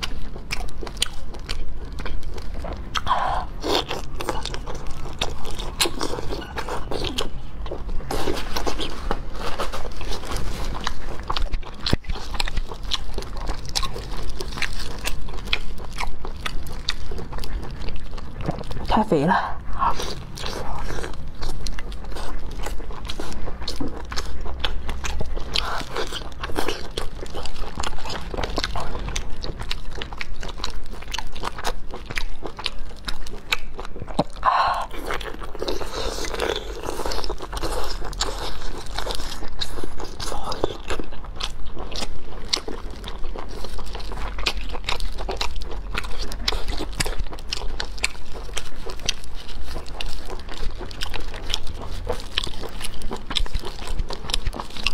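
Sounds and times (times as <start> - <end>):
person chewing wetly: 0.0 - 54.9.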